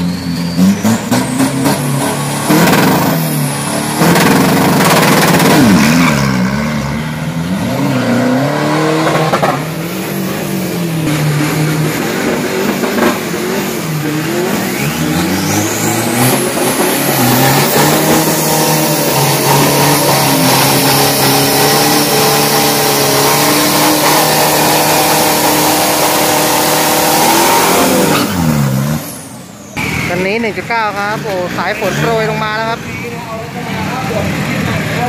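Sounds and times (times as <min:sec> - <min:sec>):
turbo whistle: 0:00.0 - 0:01.8
pickup engine revving: 0:00.0 - 0:35.0.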